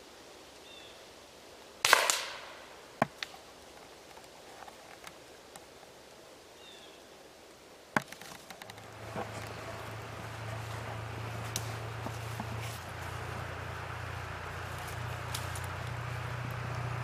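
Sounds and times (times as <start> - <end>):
air rifle shot crack: 1.8 - 2.7.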